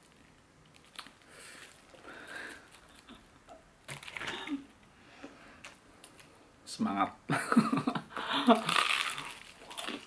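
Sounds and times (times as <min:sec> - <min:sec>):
chewing crispy chicken: 0:08.5 - 0:10.0.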